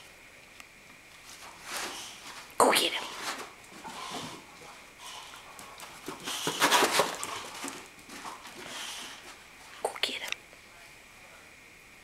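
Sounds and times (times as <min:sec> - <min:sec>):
dogs scrambling and scuffling: 0:01.1 - 0:09.8.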